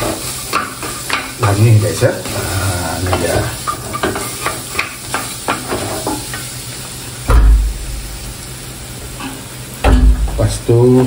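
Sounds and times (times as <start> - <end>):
food sizzling in a wok: 0.0 - 11.0
heavy low thumps: 7.3 - 8.2, 9.8 - 10.5.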